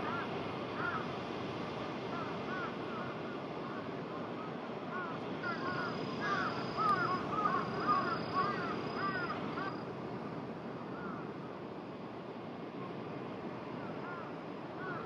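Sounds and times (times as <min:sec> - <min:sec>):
crows cawing: 0:00.0 - 0:01.2, 0:02.1 - 0:09.8, 0:10.9 - 0:11.3, 0:13.8 - 0:15.0
outdoor background hiss: 0:00.0 - 0:15.0.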